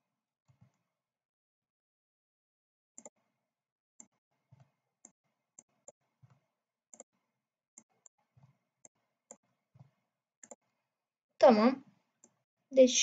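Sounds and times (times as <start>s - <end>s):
mouse and keyboard clicking: 10.4s - 10.6s.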